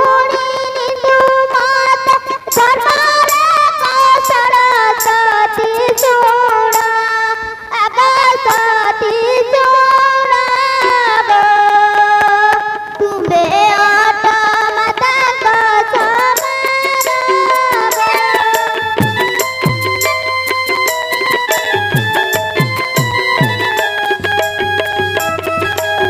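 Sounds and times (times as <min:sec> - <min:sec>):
light percussion strikes: 0:16.0 - 0:26.0.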